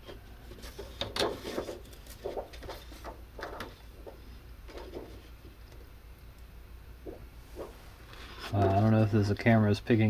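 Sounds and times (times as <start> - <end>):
plastic sheet crinkling: 0.5 - 5.3.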